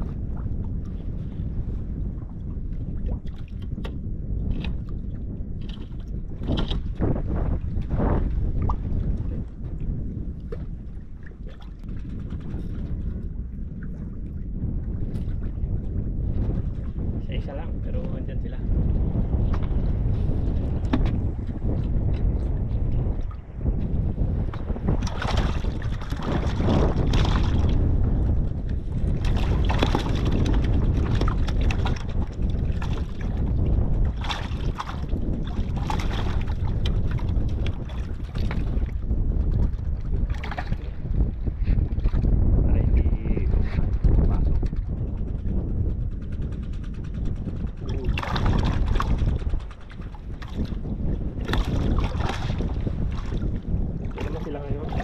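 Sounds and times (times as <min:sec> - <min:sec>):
wind buffeting microphone: 0:00.0 - 0:55.0
fishing rod clicks and rustles: 0:05.6 - 0:07.0.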